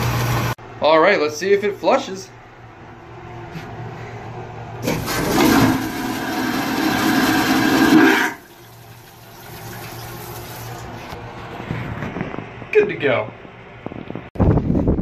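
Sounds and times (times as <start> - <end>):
toilet flushing water rush: 4.8 - 11.1.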